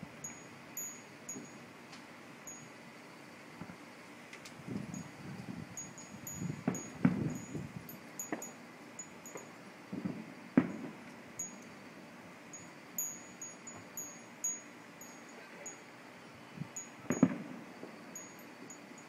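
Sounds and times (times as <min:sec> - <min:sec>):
faint firework thuds: 0:06.6 - 0:07.4, 0:09.3 - 0:11.1, 0:17.1 - 0:18.0
firework bangs: 0:06.6 - 0:07.4, 0:09.9 - 0:11.1, 0:17.1 - 0:18.1.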